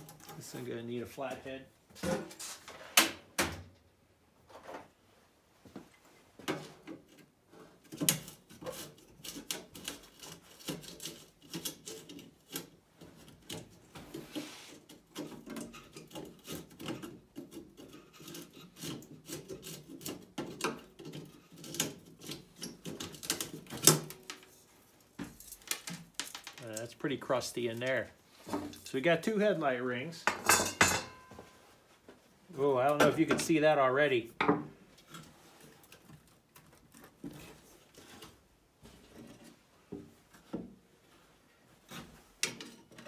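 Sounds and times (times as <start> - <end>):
screwdriver clicking and scraping metal: 15.1 - 24.4.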